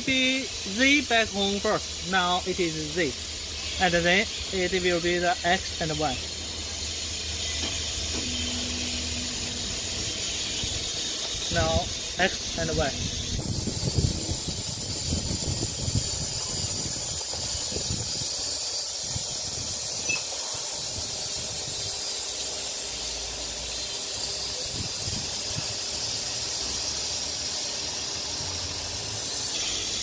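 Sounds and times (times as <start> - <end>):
steady hiss: 0.0 - 30.0
faint low motor hum: 1.9 - 17.9.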